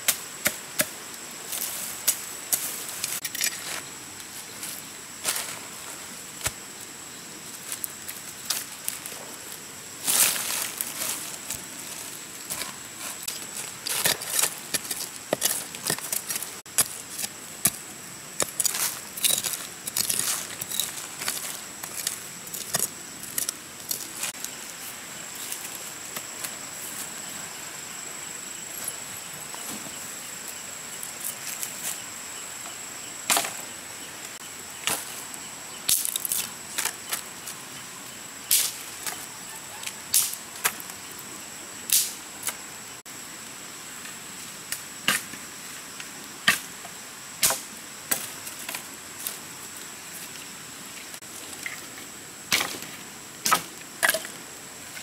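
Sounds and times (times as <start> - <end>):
machete scraping in soil: 18.4 - 24.5
machete chopping sticks: 47.4 - 48.3.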